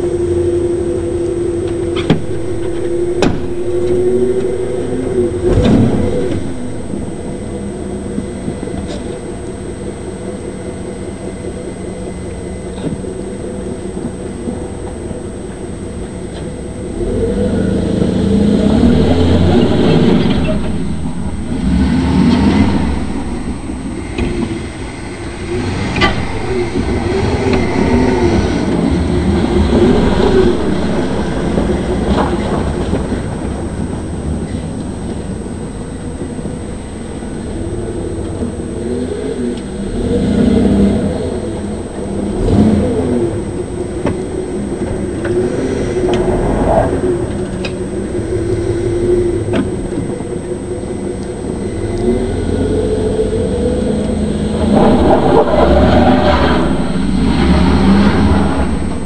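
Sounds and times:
truck engine revving: 0:00.0 - 0:08.8, 0:16.8 - 0:36.2, 0:51.4 - 0:59.0.

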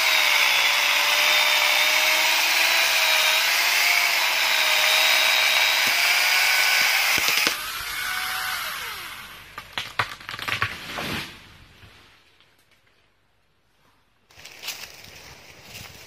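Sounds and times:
angle grinder whining: 0:00.0 - 0:09.4.

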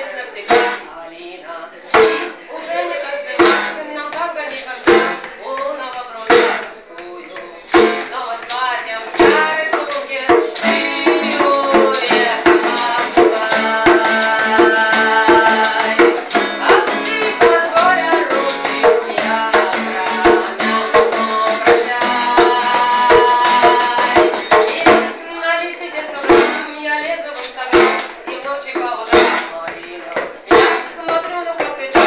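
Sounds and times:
woman singing: 0:00.0 - 0:32.0
strummed acoustic guitar: 0:00.3 - 0:00.9, 0:01.9 - 0:03.9, 0:04.8 - 0:05.4, 0:06.2 - 0:06.8, 0:07.6 - 0:25.2, 0:26.1 - 0:26.7, 0:27.7 - 0:28.4
hand drum beating: 0:00.5 - 0:00.9, 0:01.9 - 0:02.4, 0:03.4 - 0:32.0.

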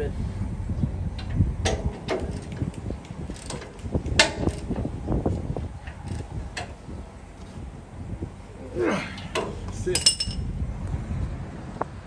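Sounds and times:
metal clanking: 0:01.2 - 0:04.9, 0:09.1 - 0:10.5
ratchet wrench clicking: 0:02.1 - 0:04.9, 0:05.8 - 0:06.8.

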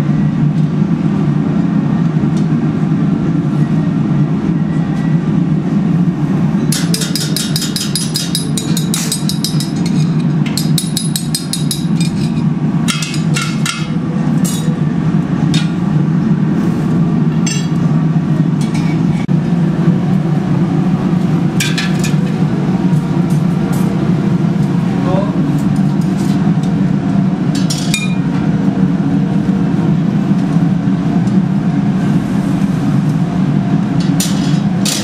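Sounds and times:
furnace roar: 0:00.0 - 0:35.0
metal tool tapping on steel: 0:06.7 - 0:12.3.

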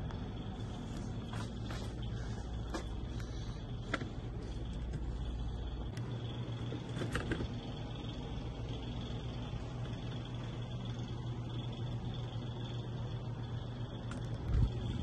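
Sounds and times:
low room hum: 0:00.0 - 0:15.0
deep rumble: 0:13.2 - 0:15.0.

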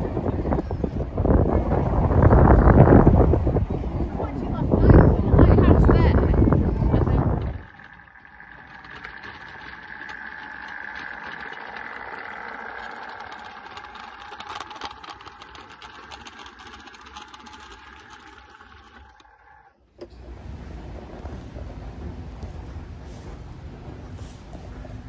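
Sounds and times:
low rumbling noise: 0:00.0 - 0:25.0
wheels clicking on track: 0:00.0 - 0:25.0
model train motor whine: 0:04.8 - 0:21.2.

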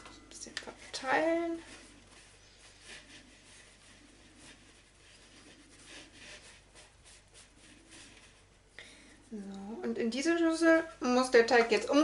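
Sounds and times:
hands rubbing on cloth: 0:01.3 - 0:08.6.

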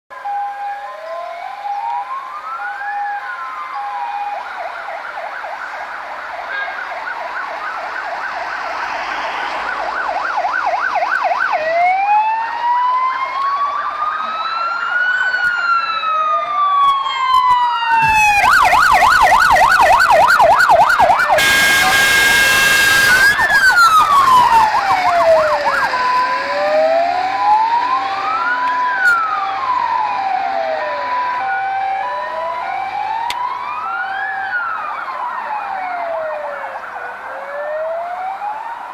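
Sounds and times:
fire engine sirens wailing: 0:00.1 - 0:38.9
truck engines and road noise: 0:00.1 - 0:38.9
horn blast: 0:21.4 - 0:23.4.

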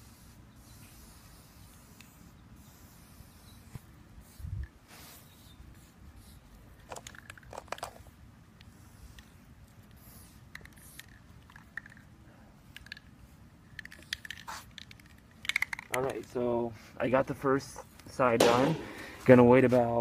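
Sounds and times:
handling clicks and rustles: 0:06.7 - 0:16.4.

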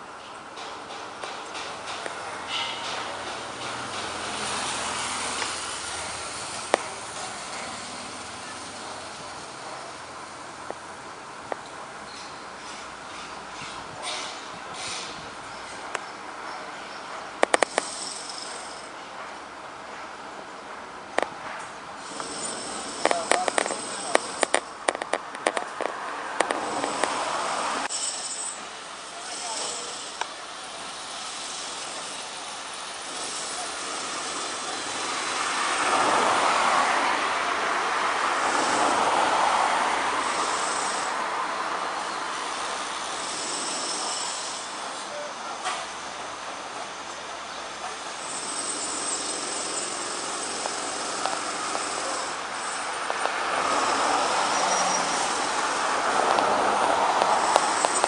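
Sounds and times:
road vehicle passing by: 0:02.1 - 0:11.5, 0:21.4 - 0:27.9, 0:33.0 - 0:45.0, 0:49.8 - 0:58.0.

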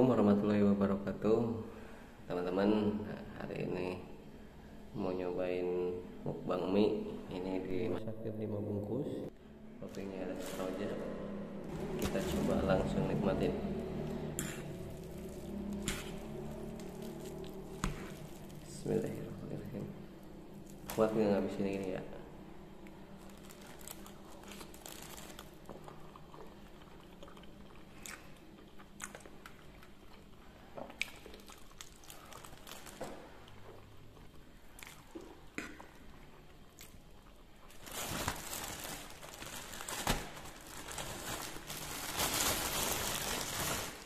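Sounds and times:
plastic bag rustling: 0:09.8 - 0:19.9, 0:20.6 - 0:21.8, 0:23.1 - 0:25.7, 0:31.8 - 0:33.3, 0:37.7 - 0:44.0.

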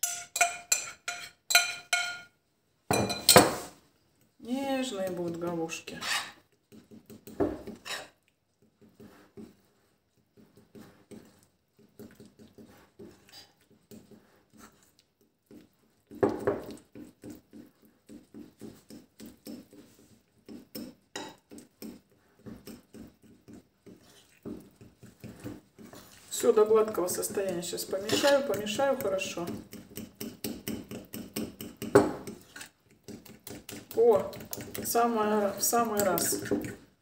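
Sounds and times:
spoon clinking and scraping bowl: 0:00.0 - 0:03.7, 0:05.1 - 0:08.2, 0:15.5 - 0:36.8.

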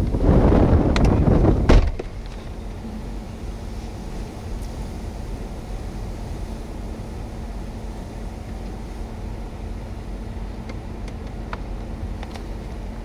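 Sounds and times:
strong wind on microphone: 0:00.0 - 0:08.5
faint steady hum: 0:00.0 - 0:13.0.

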